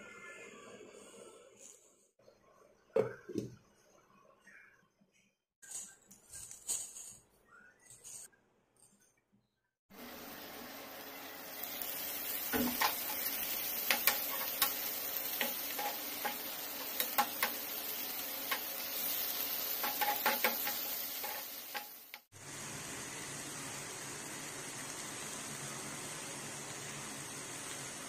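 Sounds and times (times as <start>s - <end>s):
vegetables sizzling in a pan: 9.9s - 28.0s
metal spatula scraping a pan: 12.4s - 22.2s.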